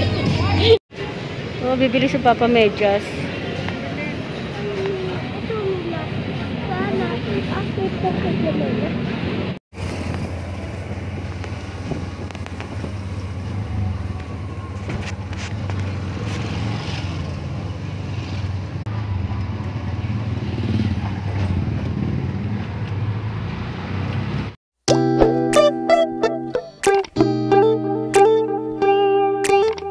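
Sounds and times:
road and wind noise: 0.0 - 24.6
guitar music: 24.9 - 29.9.

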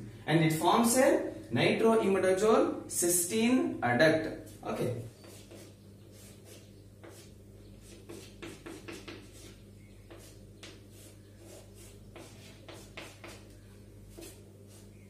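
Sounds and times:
steady low hum: 0.0 - 15.0
chalk scratching on chalkboard: 4.5 - 15.0.

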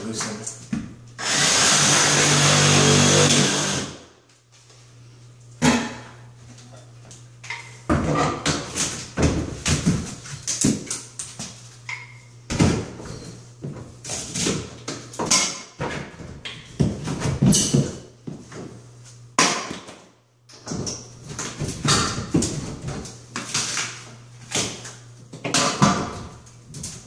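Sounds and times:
hammer breaking drywall: 19.4 - 20.0, 25.5 - 26.3.

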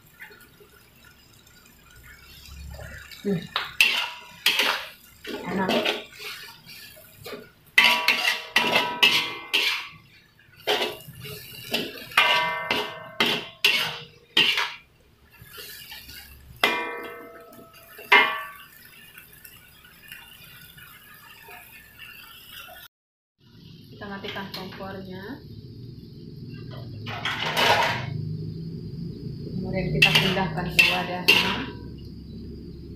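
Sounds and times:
metal spatula scraping a wok: 3.8 - 18.6, 30.0 - 31.8.

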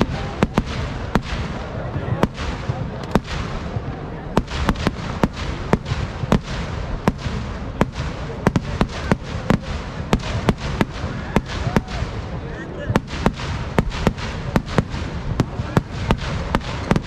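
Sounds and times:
fireworks sharp bangs: 0.0 - 17.0.

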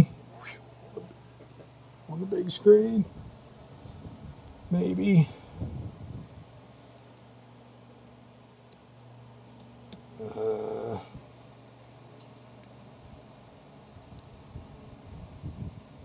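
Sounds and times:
steady low hum: 0.0 - 16.0
man mumbling: 10.2 - 11.2.

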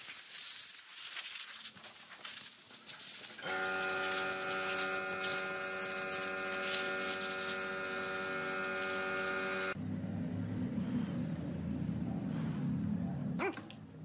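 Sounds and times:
multi-tone hum: 3.4 - 13.4.

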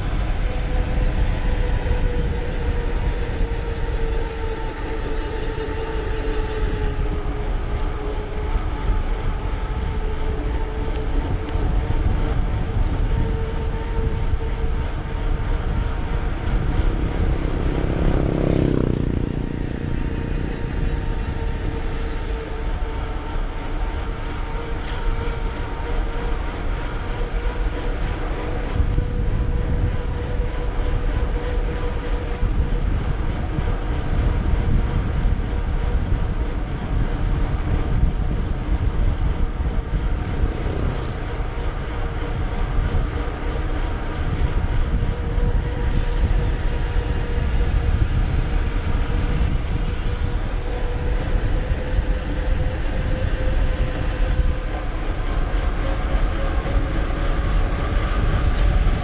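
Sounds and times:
wind on microphone: 0.0 - 59.0.

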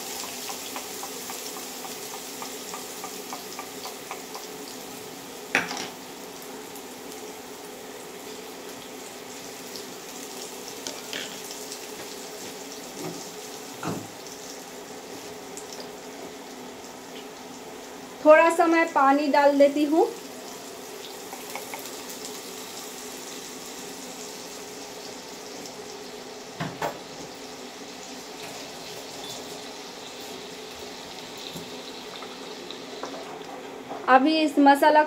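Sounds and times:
paste sizzling in hot oil: 0.0 - 16.0, 19.9 - 26.5.

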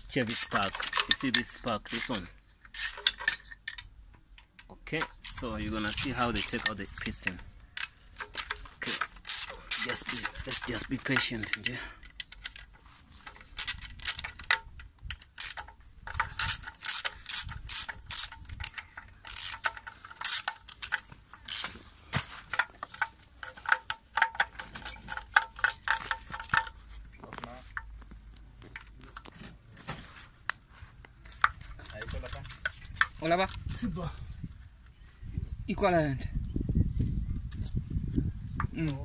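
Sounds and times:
ratchet wrench clicking: 0.3 - 3.8, 5.0 - 21.8.

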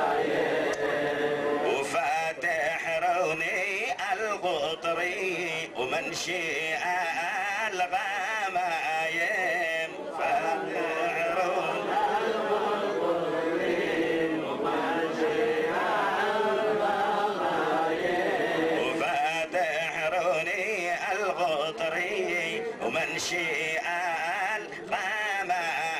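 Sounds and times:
voices chanting liturgy: 0.0 - 25.9.

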